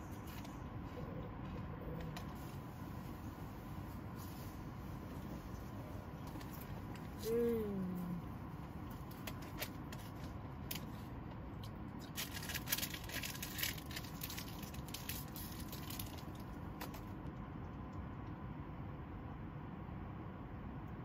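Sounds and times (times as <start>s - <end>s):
low background hum: 0.0s - 21.0s
plastic packet crinkling: 12.0s - 16.9s.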